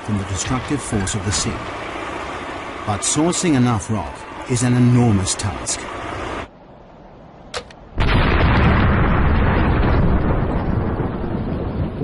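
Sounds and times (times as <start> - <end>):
explosive blast rumbling: 8.0 - 12.0.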